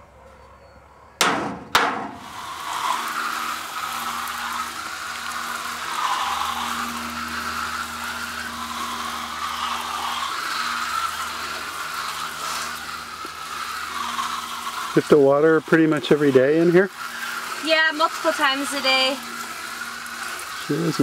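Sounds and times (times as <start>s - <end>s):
sharp smacks: 1.2s - 2.2s
hose nozzle spraying water: 1.5s - 21.0s.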